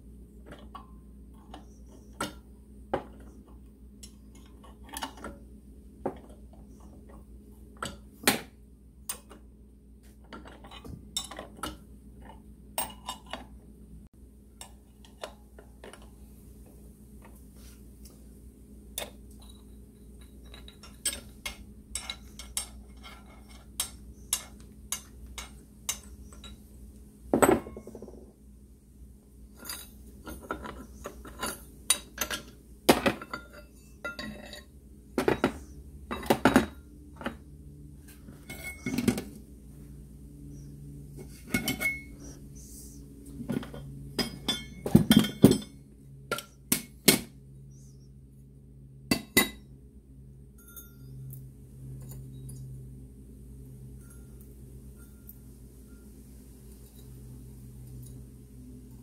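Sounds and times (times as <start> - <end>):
metal parts and tools clinking: 10.3 - 13.4, 19.0 - 26.7, 27.4 - 28.3, 29.5 - 37.4, 38.3 - 39.4, 41.2 - 42.3, 43.4 - 47.2.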